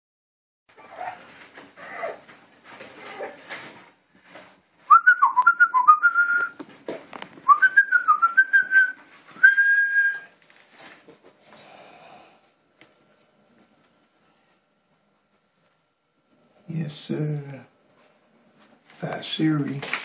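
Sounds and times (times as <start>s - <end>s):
person whistling high notes: 4.9s - 6.6s, 7.5s - 10.3s.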